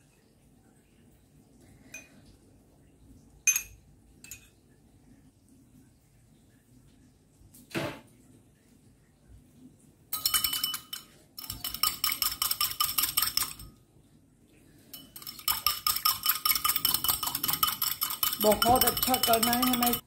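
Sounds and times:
whisk clinking against ceramic bowl: 10.1 - 13.7, 14.9 - 20.0.

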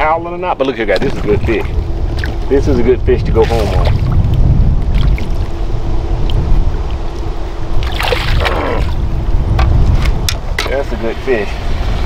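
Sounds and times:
faint steady hum: 0.0 - 12.0
wind buffeting microphone: 0.0 - 12.0
water splash: 3.4 - 4.3, 4.9 - 5.6, 7.8 - 9.0.

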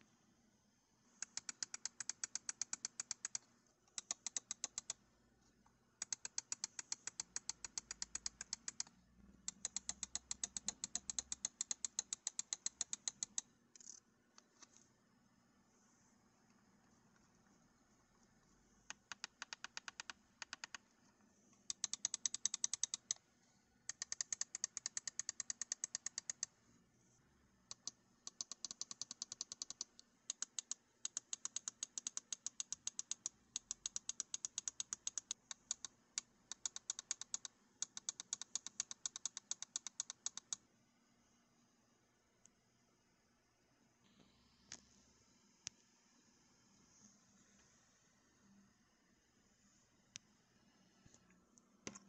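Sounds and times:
mouse scroll wheel ticking: 1.2 - 5.0, 6.0 - 14.0, 18.8 - 20.8, 21.6 - 23.2, 23.9 - 26.6, 27.7 - 40.6.

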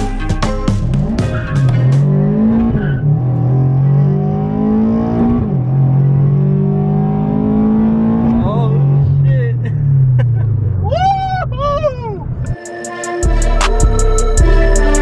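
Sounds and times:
music: 0.0 - 2.2, 12.5 - 15.0
car engine accelerating: 0.7 - 12.6.

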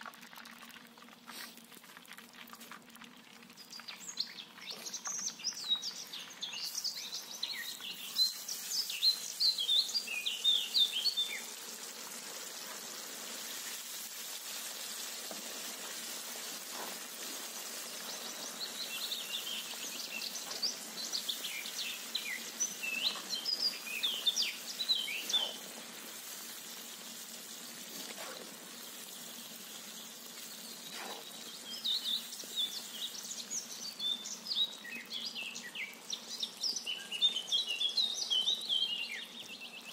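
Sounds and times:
hot oil sizzling: 0.0 - 39.4
birds chirping: 3.6 - 11.7, 16.7 - 25.8, 29.8 - 39.9.

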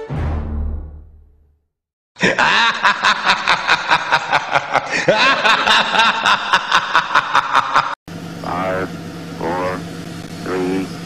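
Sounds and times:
loud laughter: 2.2 - 8.0.

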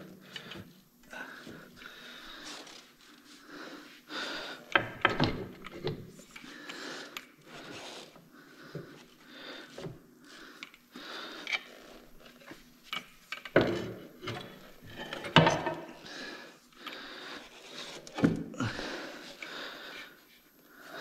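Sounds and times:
close breathing: 0.1 - 4.8, 6.3 - 12.1, 15.8 - 21.0.

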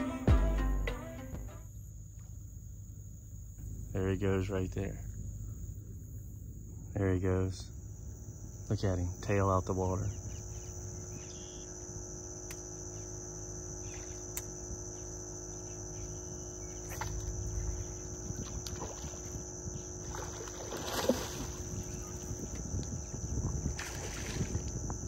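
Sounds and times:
faint steady hum: 0.0 - 25.0
thin high-pitched whine: 0.0 - 25.0
fish splashing in water: 18.4 - 22.3, 23.6 - 24.7.

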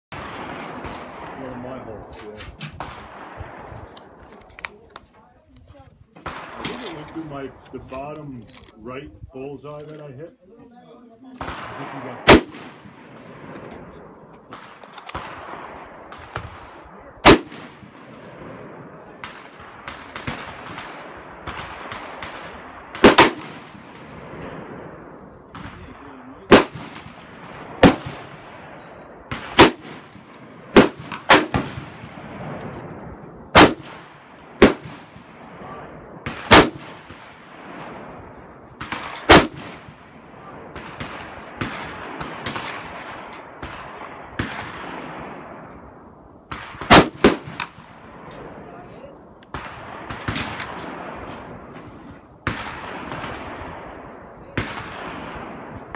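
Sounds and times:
rifle shots: 0.1 - 4.2, 6.2 - 8.2, 11.3 - 55.9
faint distant gunshots: 11.4 - 48.8.

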